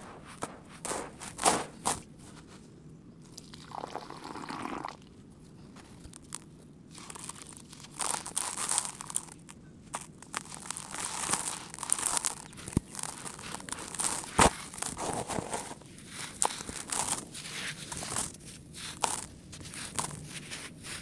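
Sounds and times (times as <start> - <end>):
gritty sand crunching: 0.0 - 2.6, 5.8 - 21.0
soft sifting hiss: 0.0 - 21.0
grains trickling and pouring: 3.4 - 5.0, 7.0 - 9.4, 10.0 - 18.3.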